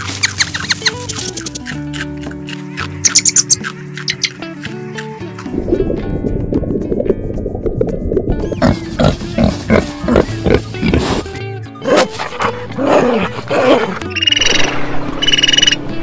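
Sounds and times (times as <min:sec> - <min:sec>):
background music: 0:00.0 - 0:16.0
dolphins whistling squeaks: 0:02.8 - 0:04.4, 0:14.1 - 0:15.8.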